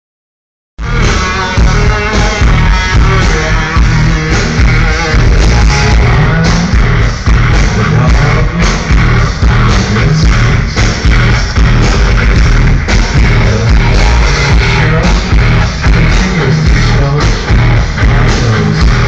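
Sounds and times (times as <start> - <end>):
loud rock music through speakers: 0.8 - 19.0.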